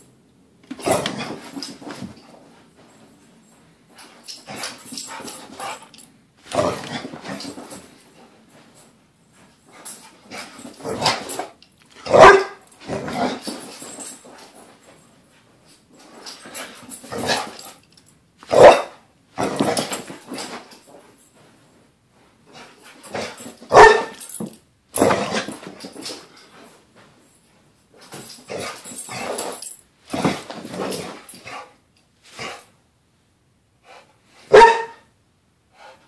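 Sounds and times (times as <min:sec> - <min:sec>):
dog barking and growling: 0:00.8 - 0:01.5, 0:06.5 - 0:07.5, 0:12.0 - 0:13.4, 0:18.5 - 0:19.9, 0:23.1 - 0:24.2.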